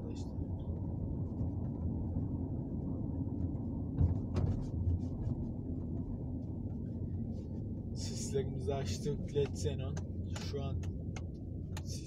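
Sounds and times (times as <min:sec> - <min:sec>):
van engine and tyres rumble: 0:00.0 - 0:12.0
thump with sharp knock: 0:04.0 - 0:04.7.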